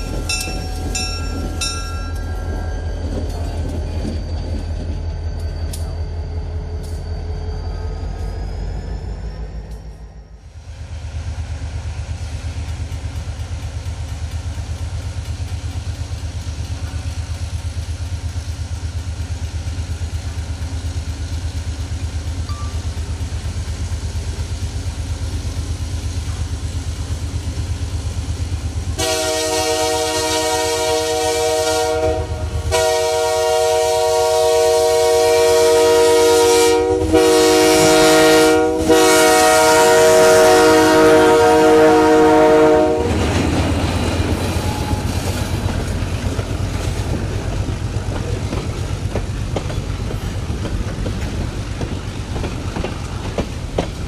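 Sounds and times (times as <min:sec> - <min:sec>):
locomotive low rumble: 0:00.0 - 0:54.0
locomotive air horn blasts: 0:29.0 - 0:43.2.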